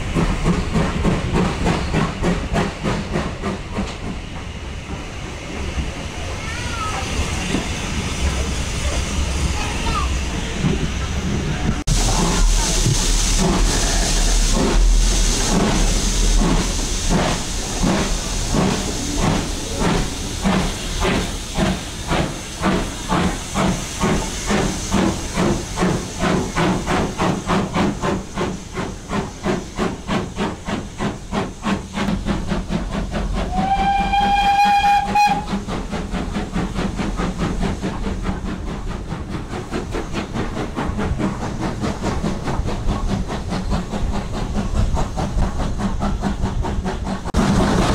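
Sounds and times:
steady steam hiss: 0:00.0 - 0:47.9
steam locomotive exhaust chuffing: 0:00.0 - 0:47.9
steam whistle blast: 0:33.5 - 0:35.5.

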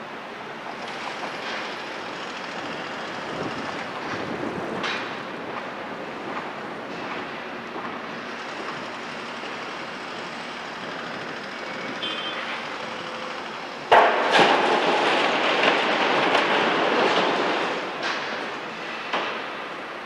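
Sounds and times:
excavator engine: 0:00.0 - 0:19.1
rubble crashing into truck body: 0:13.9 - 0:17.7.

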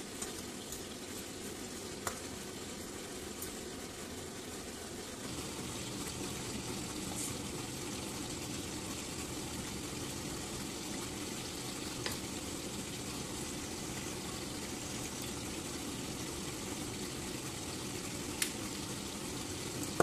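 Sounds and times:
food sizzling in a frying pan: 0:05.2 - 0:20.0.

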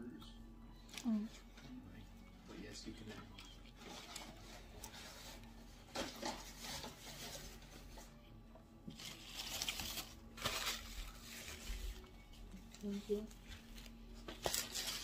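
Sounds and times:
food wrapper rustling: 0:08.9 - 0:15.0.

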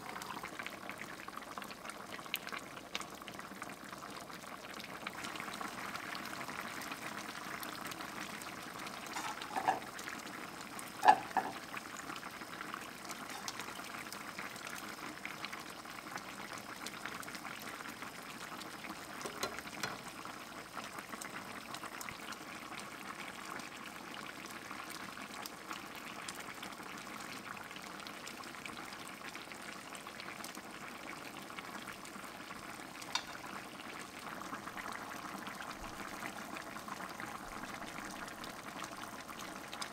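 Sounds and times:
stew bubbling in a pan: 0:00.0 - 0:39.9.

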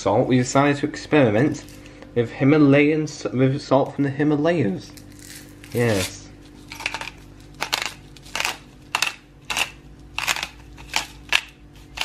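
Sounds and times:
salt grinder crunching: 0:05.0 - 0:12.0.

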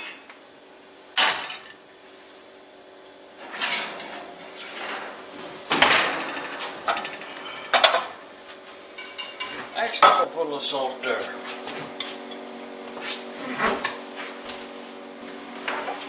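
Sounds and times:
cookware clattering on stove: 0:09.0 - 0:10.2.

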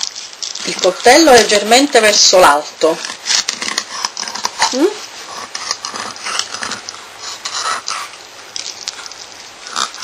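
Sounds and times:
knife scraping along fish bones: 0:02.8 - 0:10.0.

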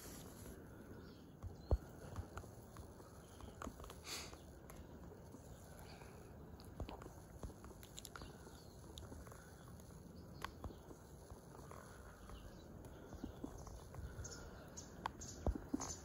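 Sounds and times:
faint clicks: 0:06.6 - 0:11.0.

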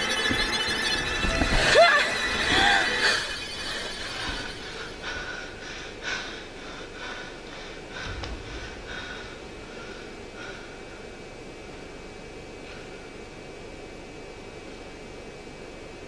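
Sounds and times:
person panting hard: 0:04.6 - 0:11.2.

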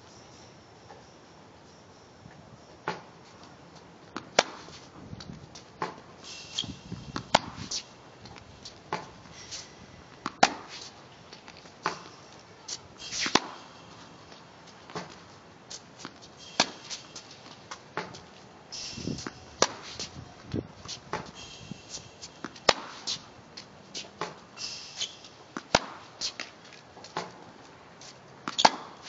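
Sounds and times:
racket striking tennis ball: 0:04.1 - 0:04.9, 0:05.8 - 0:27.5, 0:28.4 - 0:29.0
footwork scuffing: 0:04.3 - 0:18.6, 0:19.2 - 0:29.0
ball bouncing: 0:08.2 - 0:09.2.

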